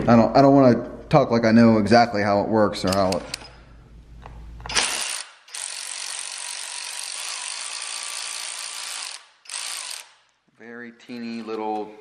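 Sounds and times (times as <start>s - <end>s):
hand ratchet clicking: 4.7s - 10.4s.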